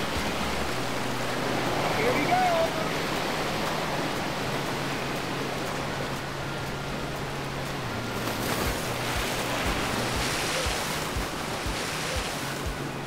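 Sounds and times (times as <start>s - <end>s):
ocean surf breaking: 0.0s - 13.0s
soft background music with beat: 0.0s - 13.0s.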